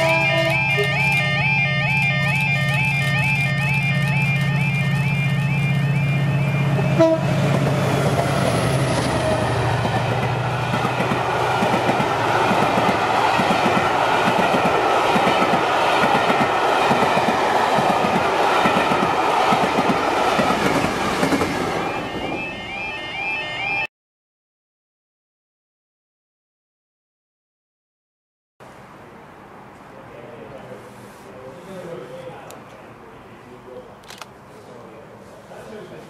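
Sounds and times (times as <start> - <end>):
locomotive passing: 0.0 - 23.7
train wheels clattering: 7.4 - 21.6.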